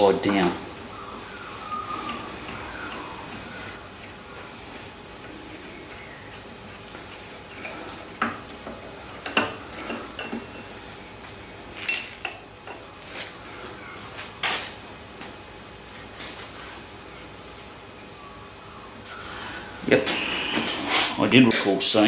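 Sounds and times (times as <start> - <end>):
steel tools clinking on metal: 11.8 - 12.4, 21.5 - 22.0.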